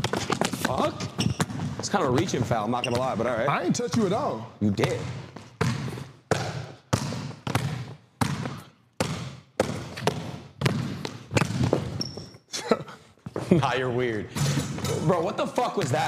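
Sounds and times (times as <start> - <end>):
basketball bouncing on gym court: 0.0 - 12.3.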